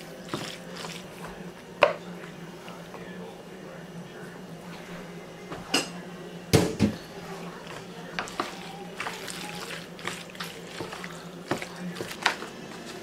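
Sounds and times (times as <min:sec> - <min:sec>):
wooden spoon stirring pasta: 0:00.0 - 0:03.0, 0:07.1 - 0:13.0.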